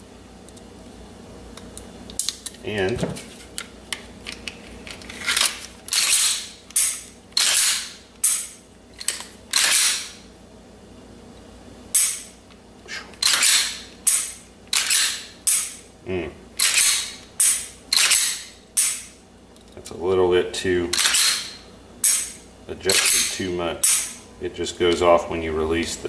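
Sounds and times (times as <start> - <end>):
pistol slide clacking: 13.2 - 15.7, 16.6 - 19.1.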